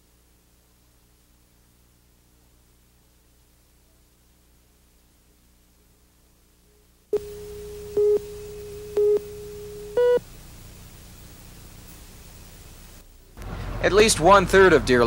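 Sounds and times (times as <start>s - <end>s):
faint hiss: 0.0s - 13.6s
countdown beeps: 7.2s - 10.2s
steady low tone: 7.2s - 10.2s.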